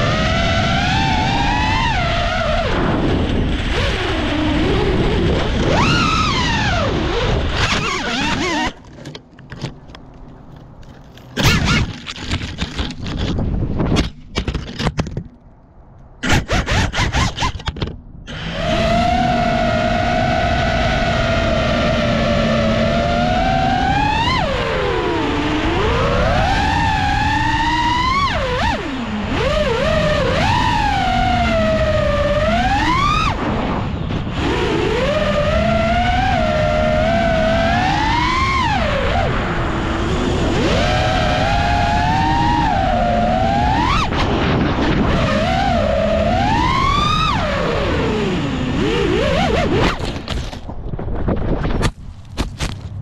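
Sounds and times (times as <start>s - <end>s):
quadcopter motors whining: 0.0s - 8.9s, 18.3s - 50.6s.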